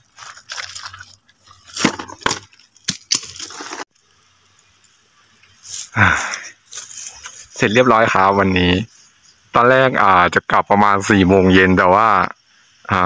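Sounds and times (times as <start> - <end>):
footsteps crunching through dry leaves: 0.0 - 3.9, 6.6 - 7.7
high insect buzz: 3.2 - 10.3, 11.2 - 13.0.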